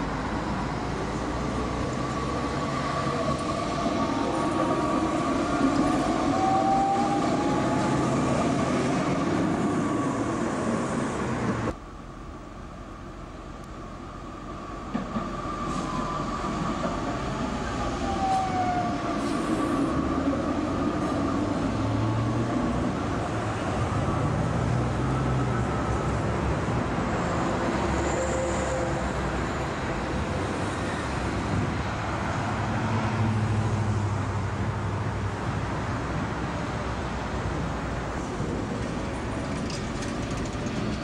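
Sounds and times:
tram whine sliding down: 0.0 - 33.8, 36.5 - 41.0
wheel rumble on rails: 38.5 - 41.0.

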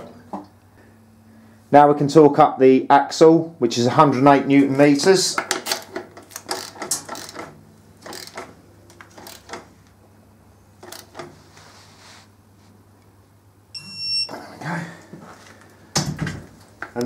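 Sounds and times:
short high beep: 13.7 - 14.4.

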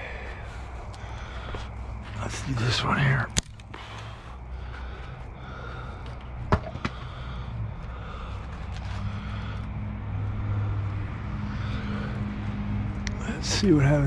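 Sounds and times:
low mechanical hum: 0.0 - 14.0
light ticks: 12.9 - 13.2.

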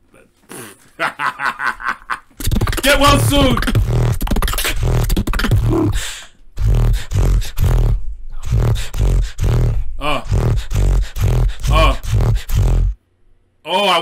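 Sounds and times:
beatboxing kick and snare beat: 2.4 - 13.0
wavering pitched vocal sounds: 2.4 - 13.0.

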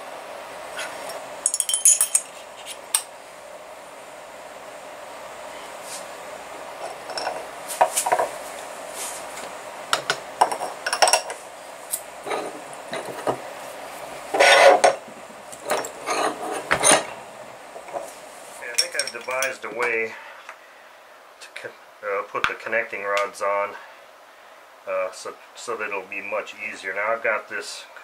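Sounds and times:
metal scraping rub: 14.3 - 15.0, 15.6 - 17.2.

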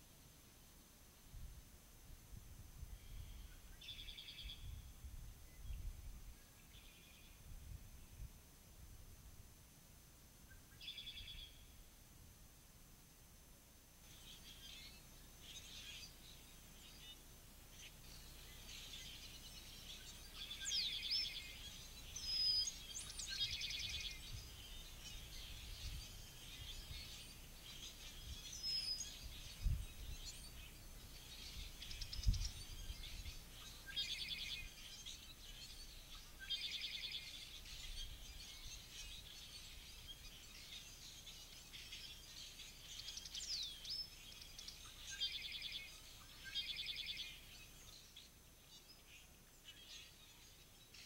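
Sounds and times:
songbirds singing: 0.0 - 51.0.

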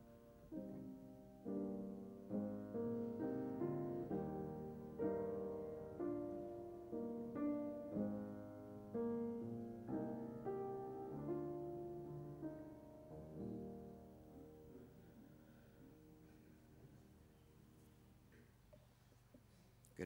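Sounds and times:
slow solo piano chords: 0.0 - 18.8.

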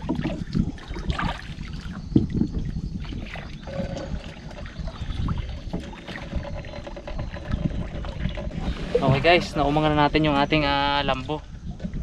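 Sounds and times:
wooden boat knocking: 0.0 - 1.3, 2.1 - 10.2
water sloshing against hull: 0.0 - 12.0.

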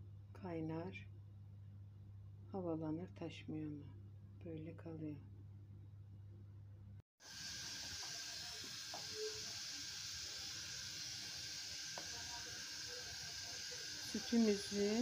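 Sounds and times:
milk pot hissing on stove: 7.2 - 15.0.

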